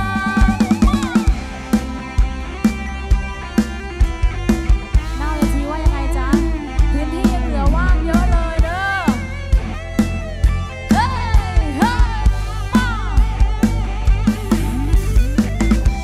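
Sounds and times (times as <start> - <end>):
woman singing: 0.0 - 1.3, 5.2 - 9.3, 10.9 - 13.4
bass: 0.0 - 16.0
drum kit beat: 0.0 - 16.0.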